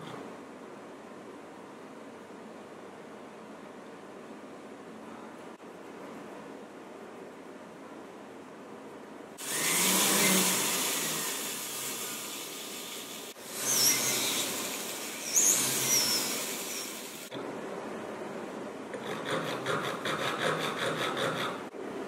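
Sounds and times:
rotary handpiece whirring: 9.4 - 17.3
high squeals from cutting wax: 9.5 - 12.3, 13.5 - 17.3.

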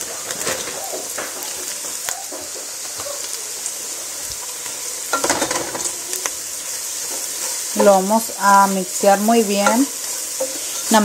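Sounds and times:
vegetables sizzling in oil: 0.0 - 11.0
spatula scraping pot: 9.2 - 11.0.

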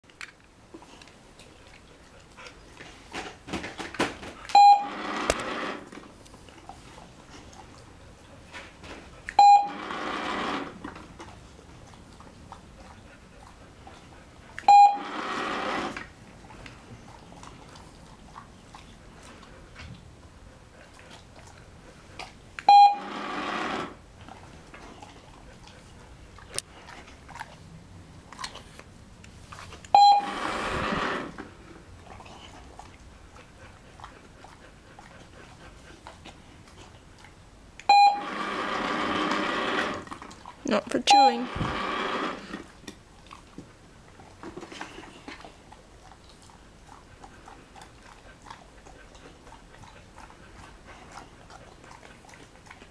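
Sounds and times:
short electronic beep: 4.6 - 5.0, 9.4 - 9.8, 14.7 - 15.0, 22.7 - 23.1, 30.0 - 30.4, 37.9 - 38.3, 41.1 - 41.5.

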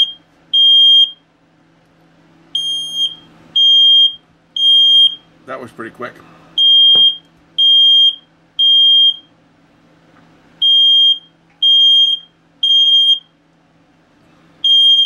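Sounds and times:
smoke alarm beeping: 0.0 - 1.3, 2.5 - 5.3, 6.6 - 9.3, 10.6 - 13.3, 14.6 - 15.0.

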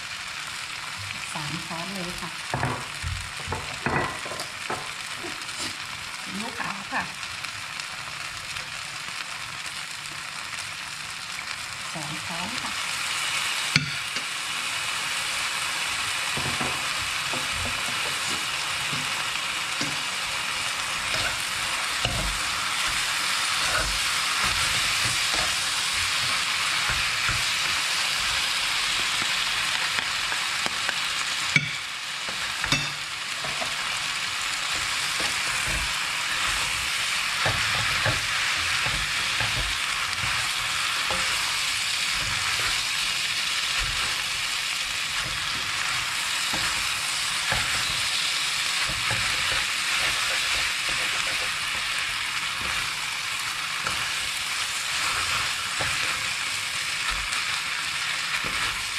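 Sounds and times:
noodles sizzling in a pan: 0.0 - 58.9
spatula scraping a pan: 5.4 - 5.9, 16.3 - 30.5, 31.5 - 53.1, 53.7 - 58.9.

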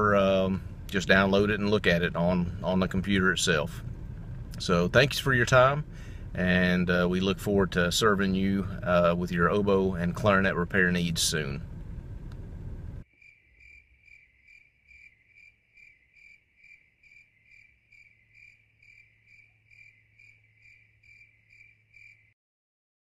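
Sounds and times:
low steady hum: 0.0 - 13.0
insect chirping: 13.0 - 22.4.

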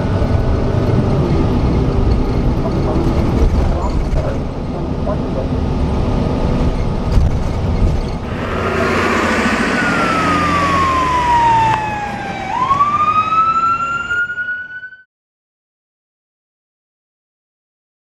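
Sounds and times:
bus engine rumble: 0.0 - 14.3
siren-like wail: 8.2 - 15.1.

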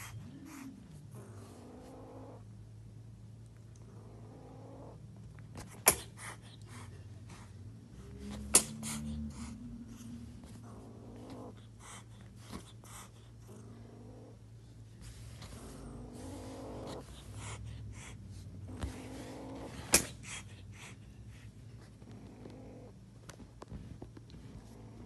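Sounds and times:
kitten growling: 0.0 - 2.5, 3.8 - 6.9, 8.0 - 14.5, 15.4 - 20.9, 22.0 - 23.0
loud sharp snaps: 8.5 - 9.0.

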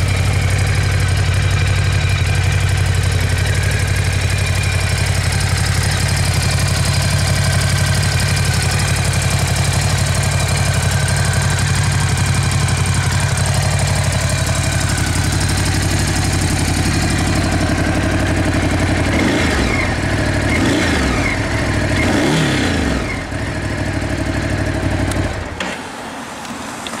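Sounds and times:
motorcycle engine idling and revving: 0.0 - 27.0.

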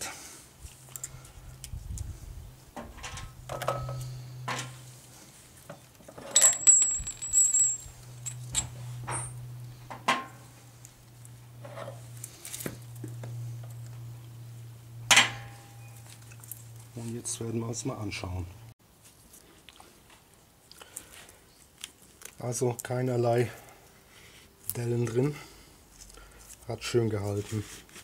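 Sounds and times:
metal clinks and knocks: 6.0 - 10.3
small metal parts jingling: 6.2 - 9.4
low hum: 6.4 - 18.7.

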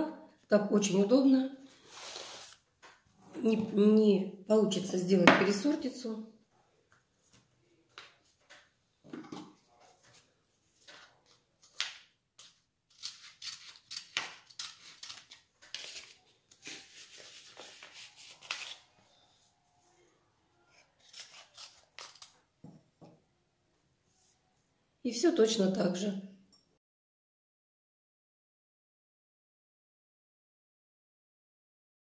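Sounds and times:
paper packet rustling and crinkling: 9.8 - 19.0, 21.0 - 22.5
scissors snipping paper: 12.4 - 18.8, 21.0 - 22.4.

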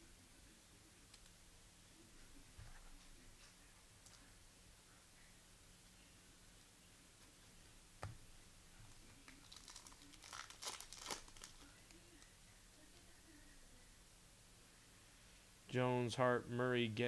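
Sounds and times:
wrapper tearing and crinkling: 9.4 - 11.7.

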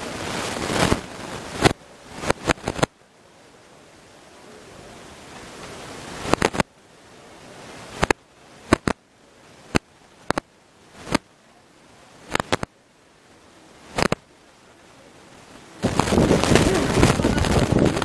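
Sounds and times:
faint hiss: 0.0 - 18.0
sharp clicks: 1.6 - 2.9, 6.2 - 6.7, 8.0 - 9.0, 9.7 - 11.3, 12.3 - 12.7, 14.0 - 14.2.

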